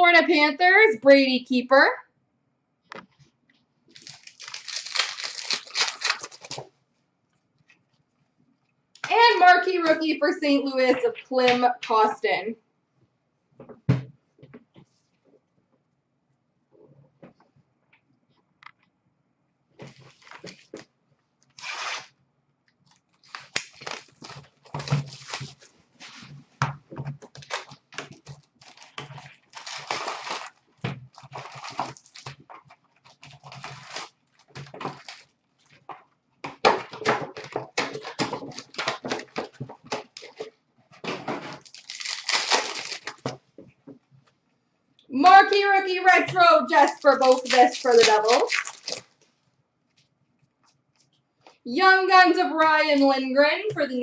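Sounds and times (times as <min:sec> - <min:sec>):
foil wrappers tearing and crinkling: 0:03.9 - 0:06.7, 0:21.5 - 0:22.1, 0:22.9 - 0:25.7, 0:27.3 - 0:35.8, 0:37.4 - 0:40.5, 0:41.5 - 0:43.4, 0:46.7 - 0:49.2.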